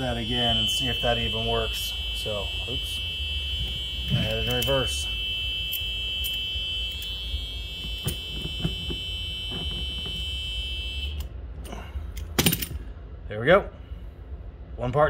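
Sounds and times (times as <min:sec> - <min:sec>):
reverse warning buzzer: 0:00.0 - 0:11.4.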